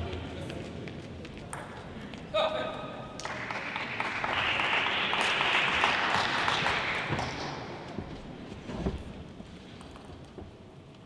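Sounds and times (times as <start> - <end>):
audience applauding: 3.2 - 7.7.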